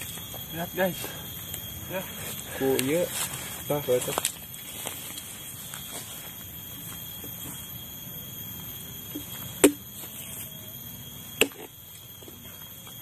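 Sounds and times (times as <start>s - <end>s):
high-pitched whine: 0.0s - 13.0s.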